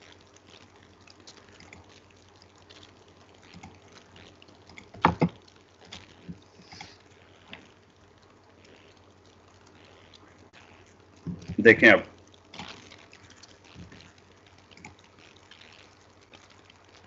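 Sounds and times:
faint steady hiss: 0:00.0 - 0:17.0
computer mouse clicks: 0:14.8 - 0:15.0.

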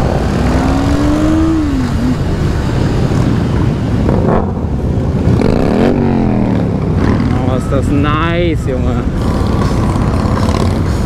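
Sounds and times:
motorcycle engine revving: 0:00.0 - 0:07.9
motorcycle engines running: 0:00.0 - 0:11.0.

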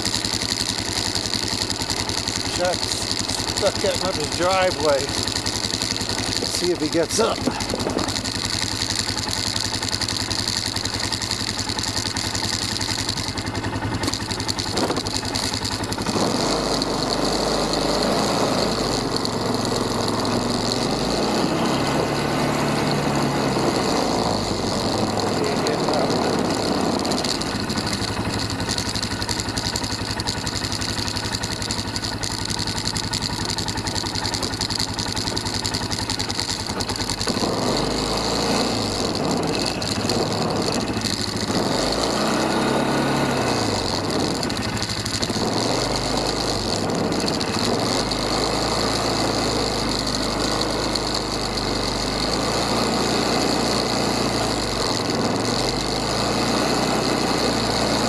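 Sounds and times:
quad bike engine running: 0:00.0 - 0:58.0.

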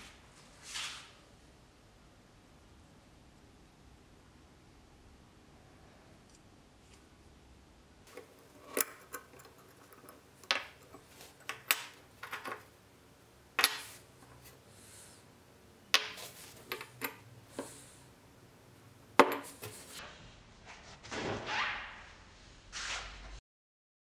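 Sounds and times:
metal parts clicking on wood: 0:08.1 - 0:12.7.

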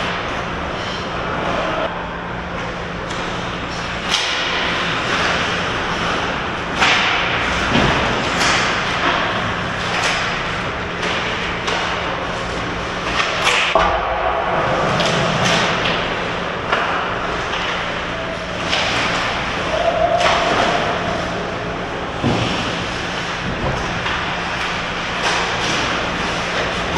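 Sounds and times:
sticks and puck clattering: 0:03.1 - 0:10.4, 0:11.0 - 0:21.4, 0:22.2 - 0:26.9.

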